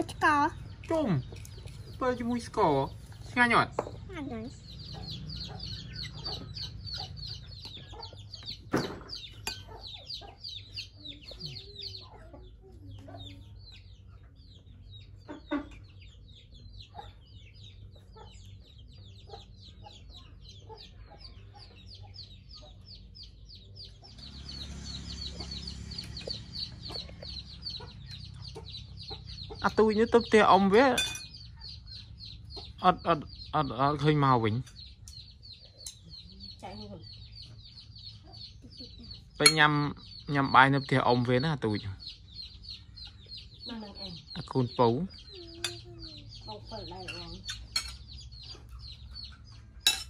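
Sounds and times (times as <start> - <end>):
chickens clucking and chirping: 0.0 - 50.0.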